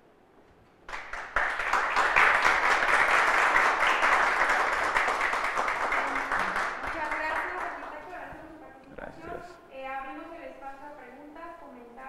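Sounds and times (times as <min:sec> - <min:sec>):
audience applauding: 0:00.9 - 0:08.3.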